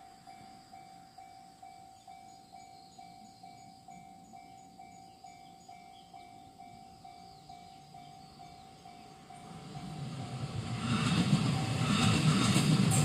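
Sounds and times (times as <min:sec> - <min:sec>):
level crossing warning bell: 0:00.0 - 0:10.1.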